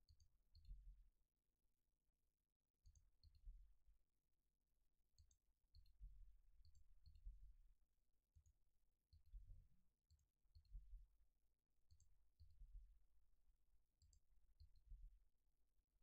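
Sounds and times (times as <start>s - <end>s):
computer mouse clicks: 5.2s - 5.9s.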